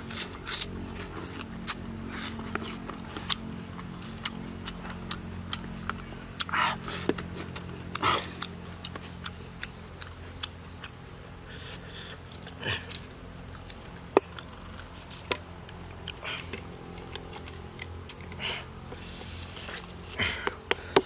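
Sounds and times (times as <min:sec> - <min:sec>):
knife cutting and scraping: 0:00.0 - 0:03.5
high insect drone: 0:00.0 - 0:21.0.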